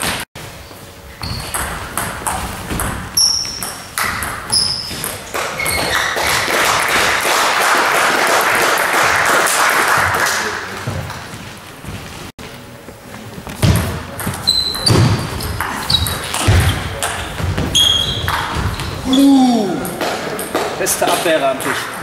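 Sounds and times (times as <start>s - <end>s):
crowd applauding: 5.3s - 11.3s.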